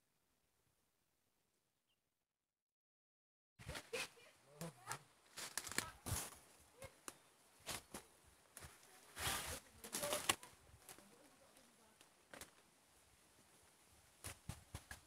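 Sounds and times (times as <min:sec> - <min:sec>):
footsteps through undergrowth: 0:03.6 - 0:12.7.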